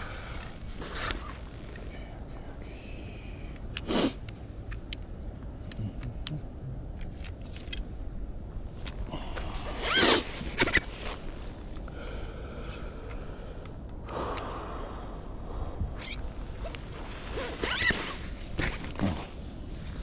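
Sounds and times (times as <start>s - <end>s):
small clicks and scrapes: 7.0s - 7.9s
quick zip-like pull: 9.7s - 10.8s.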